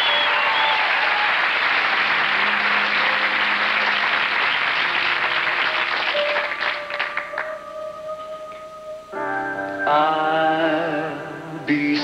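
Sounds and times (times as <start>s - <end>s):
audience applauding: 0.0s - 7.6s
soft piano notes: 4.9s - 12.0s.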